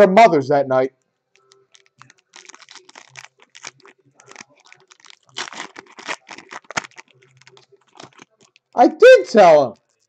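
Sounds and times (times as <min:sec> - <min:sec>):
foil wrapper crinkling and tearing: 0:01.3 - 0:08.8.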